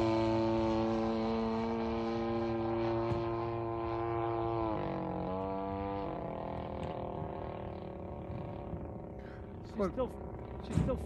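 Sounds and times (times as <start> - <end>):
model plane engine in flight: 0.0 - 11.0.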